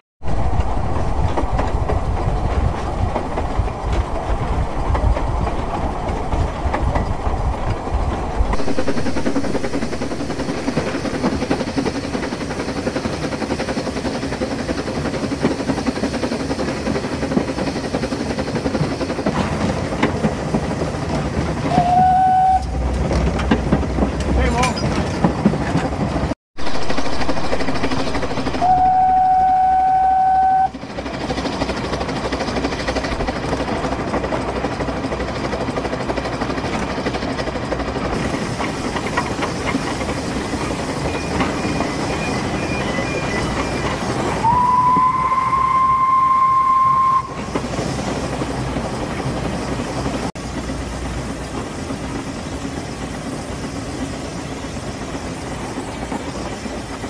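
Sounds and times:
steam locomotive rumble and rattle: 0.2 - 57.0
steam whistle blasts: 21.7 - 22.8, 28.6 - 30.8, 44.3 - 47.5.

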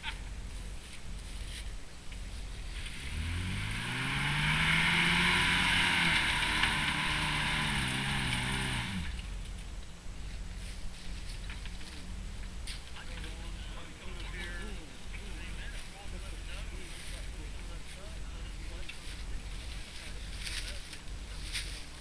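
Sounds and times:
truck engine revving: 2.5 - 9.4.

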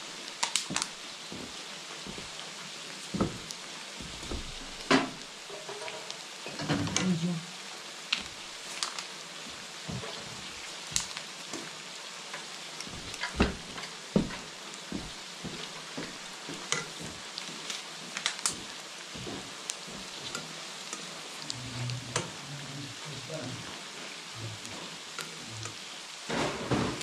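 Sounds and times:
mushrooms sizzling in a wok: 0.0 - 27.0.

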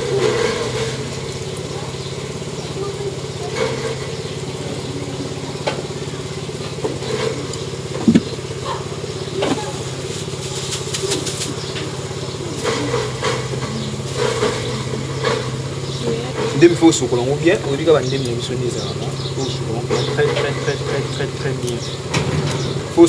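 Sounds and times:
small engine humming: 0.0 - 23.0
sharp knocks: 8.0 - 8.4
plastic bag crackling: 9.5 - 11.8.

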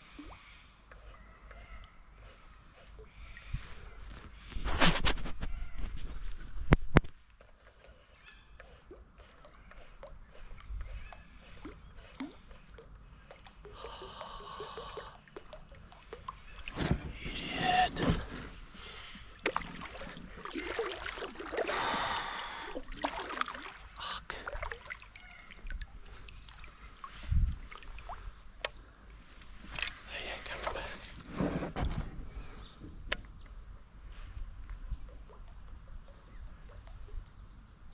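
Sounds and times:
water splashing and dripping: 8.8 - 18.4, 19.3 - 29.2.

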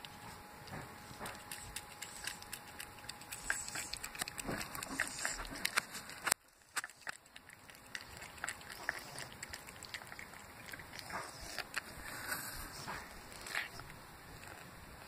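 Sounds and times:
cat chewing wetly: 0.0 - 15.0.

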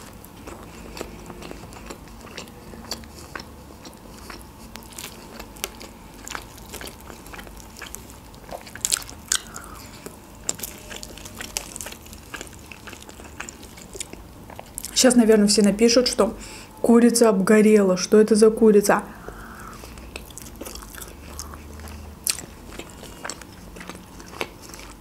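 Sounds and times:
chewing: 0.0 - 15.0, 19.2 - 25.0
crispy chicken skin crackling: 0.0 - 15.0.

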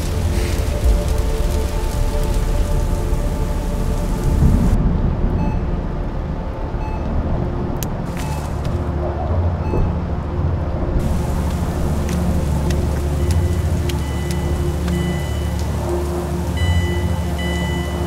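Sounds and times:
low rumble of thunder: 0.0 - 7.8
heavy rain: 0.0 - 18.0.

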